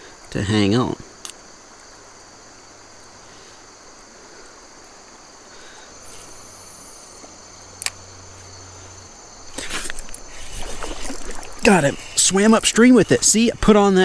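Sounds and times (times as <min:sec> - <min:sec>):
insects trilling: 0:00.0 - 0:14.0
sharp clicks: 0:07.8 - 0:08.0
flowing river water: 0:09.1 - 0:14.0.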